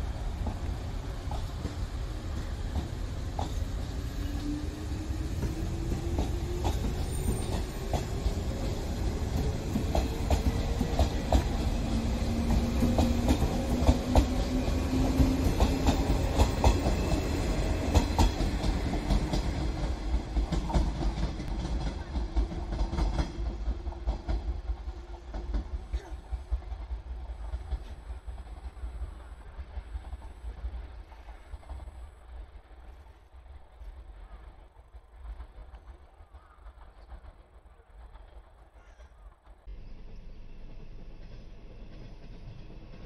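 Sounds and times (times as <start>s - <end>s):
train wheels clicking over rail joints: 0.0s - 33.1s
train rumble: 0.0s - 43.0s.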